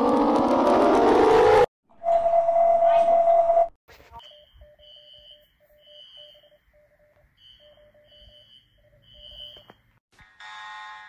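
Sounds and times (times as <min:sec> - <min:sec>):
high electronic alarm beeps: 0:02.0 - 0:09.6.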